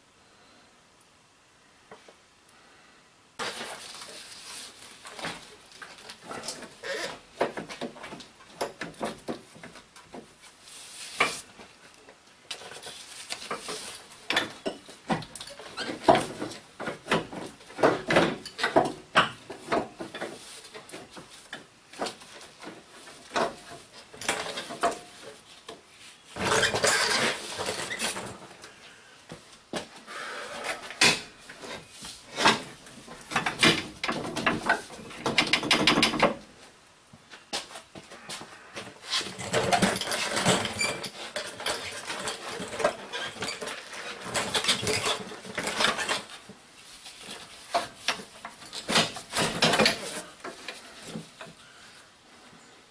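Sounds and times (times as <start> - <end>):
metal lines clinking and knocking: 32.4 - 36.4, 39.3 - 46.3, 47.2 - 50.8.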